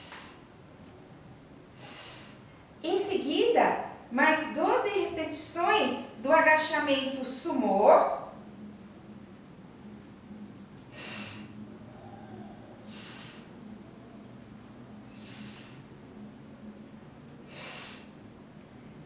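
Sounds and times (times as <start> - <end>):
woman breathing out sharply: 0.0 - 0.5, 10.9 - 12.2, 12.9 - 13.6.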